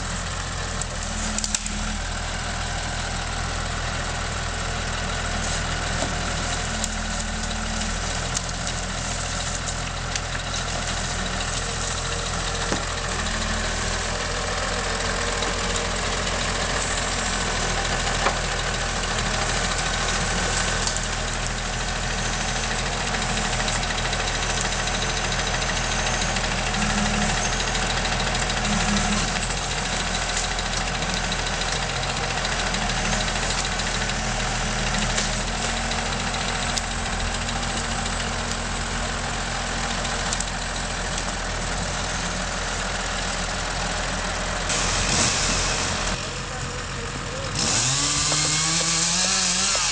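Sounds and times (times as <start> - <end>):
tractor diesel engine running: 0.0 - 49.9
knocks of logs loading: 5.1 - 41.8, 47.6 - 49.9.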